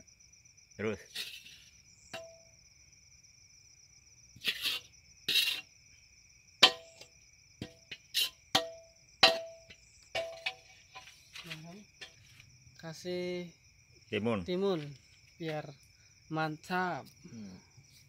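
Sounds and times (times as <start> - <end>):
spatula scraping wok: 1.1 - 1.8, 4.4 - 5.7, 7.6 - 8.4
spatula clanging on wok: 2.1 - 2.4, 6.6 - 7.0, 7.6 - 10.6.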